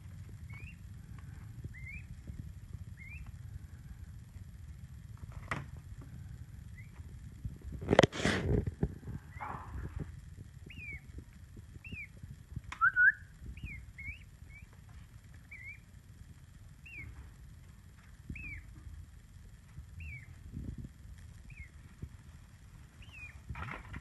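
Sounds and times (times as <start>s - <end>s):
chick peeping: 0.4s - 3.4s, 6.7s - 7.0s, 9.0s - 15.9s, 16.8s - 17.3s, 18.2s - 18.8s, 19.9s - 20.4s, 21.4s - 22.0s, 22.8s - 24.0s.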